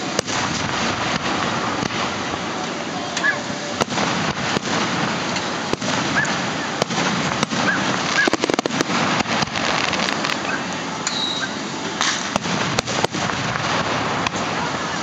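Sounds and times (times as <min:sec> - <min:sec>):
crackling pops: 0:00.0 - 0:11.2, 0:12.0 - 0:14.7
firework shell bursts: 0:03.2 - 0:14.6.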